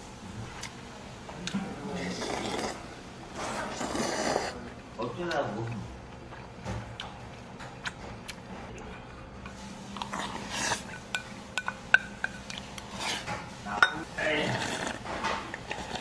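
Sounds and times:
person slurping from bowl: 0:02.0 - 0:02.8, 0:03.4 - 0:04.6, 0:14.3 - 0:15.0
spoon and chopsticks clinking on bowl: 0:11.1 - 0:12.6, 0:13.8 - 0:14.0.

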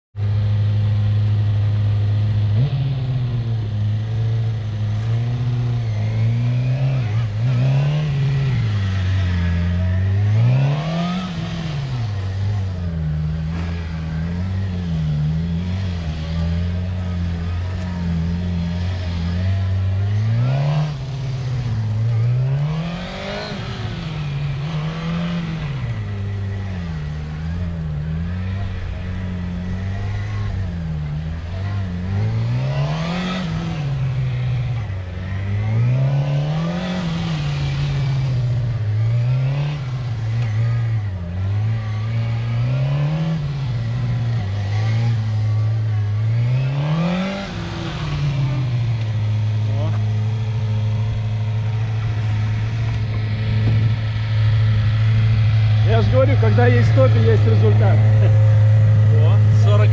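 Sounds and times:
motorcycle engine revving: 0:00.0 - 0:59.9.

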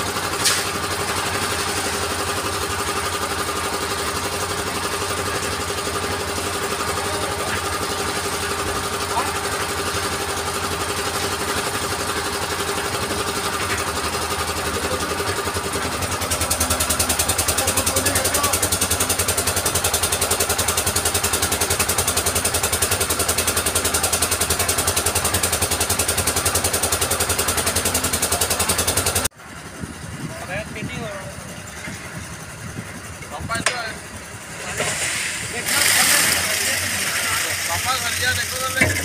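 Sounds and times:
concrete mixer engine running: 0:00.0 - 0:39.0.

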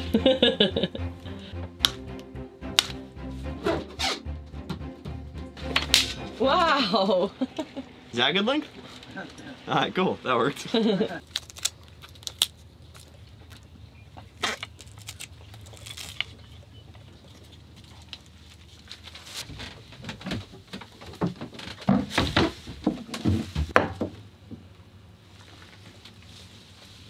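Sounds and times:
low steady hum: 0:00.0 - 0:03.6, 0:04.4 - 0:20.7.

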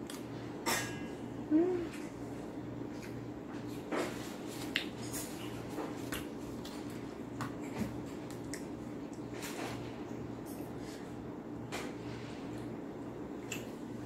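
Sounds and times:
chewing and finger smacks: 0:00.0 - 0:00.3, 0:04.6 - 0:09.3, 0:13.4 - 0:13.8.

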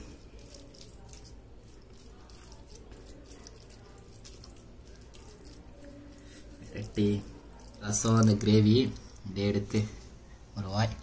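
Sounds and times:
wet squelching of food mixed by hand: 0:00.0 - 0:09.4.

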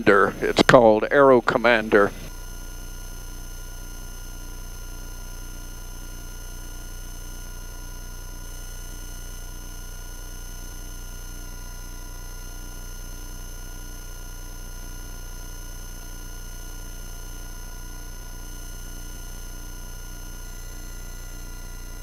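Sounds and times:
electrical hum with whining tones: 0:00.0 - 0:22.0.

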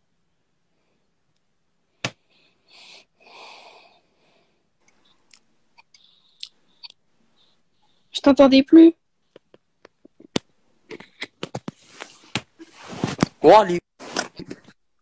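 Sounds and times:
breath noise: 0:02.2 - 0:08.1.

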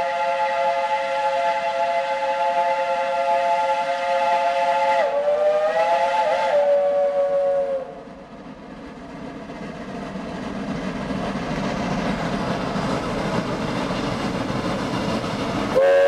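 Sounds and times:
steam locomotive whistle: 0:00.0 - 0:08.1, 0:15.7 - 0:16.0.

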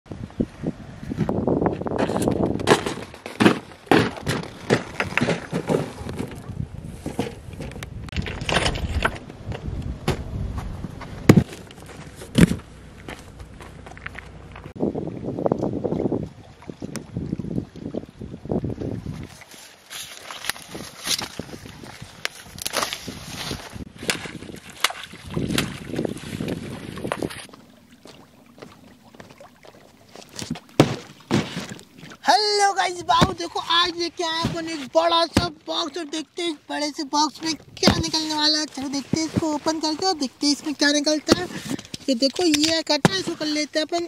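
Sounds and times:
wind rumbling on microphone: 0:00.1 - 0:03.2, 0:05.9 - 0:19.5, 0:20.4 - 0:30.8, 0:37.3 - 0:42.1
footsteps on bare rock: 0:10.1 - 0:14.8
water lapping at shore: 0:11.5 - 0:44.0
sharp thumps: 0:30.4 - 0:31.8.

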